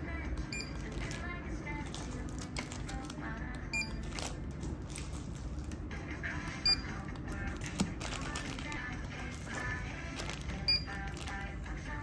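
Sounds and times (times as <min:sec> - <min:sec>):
barcode scanner beeping: 0:00.5 - 0:00.9, 0:03.7 - 0:04.3, 0:06.6 - 0:07.1, 0:10.6 - 0:11.2
plastic-wrapped goods crinkling: 0:00.8 - 0:03.3, 0:03.9 - 0:05.9, 0:07.1 - 0:11.8.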